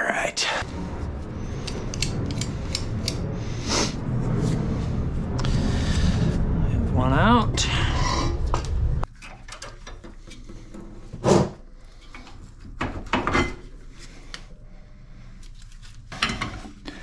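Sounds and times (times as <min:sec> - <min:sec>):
low rumble: 0:00.6 - 0:09.1.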